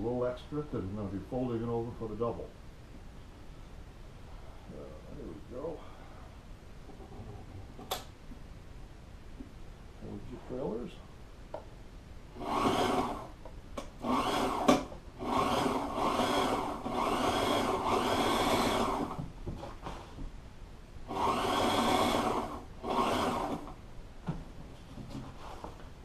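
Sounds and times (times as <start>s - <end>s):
sewing machine stitching: 12.4s - 13.3s, 21.1s - 23.7s.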